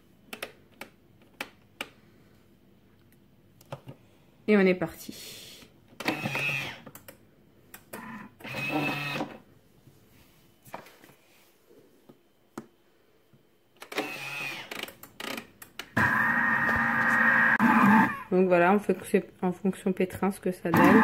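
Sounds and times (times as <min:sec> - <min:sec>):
kitchen machine motor humming: 0:16.0 - 0:18.3, 0:20.8 - 0:21.0.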